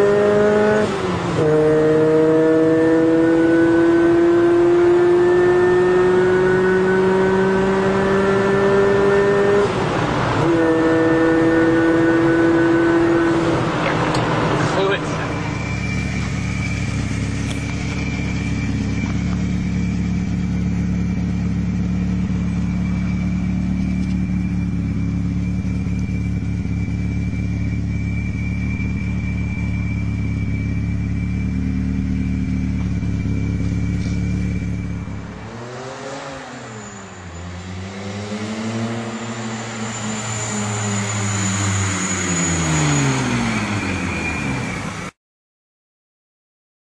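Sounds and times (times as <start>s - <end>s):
car engine running: 0.1s - 37.0s
thin steady whine: 14.5s - 35.7s.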